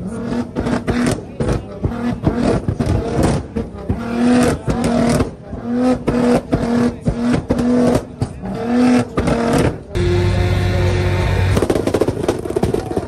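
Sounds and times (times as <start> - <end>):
car engine revving: 0.0 - 13.0
exhaust pops and cracks: 0.6 - 9.9, 11.5 - 13.0
low engine drone: 9.8 - 12.5.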